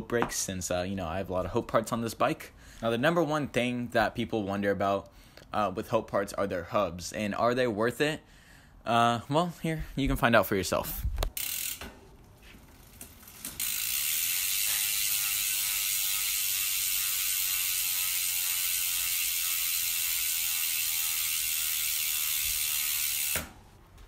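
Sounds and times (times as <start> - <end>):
bike hub freewheel buzzing: 11.4 - 23.6.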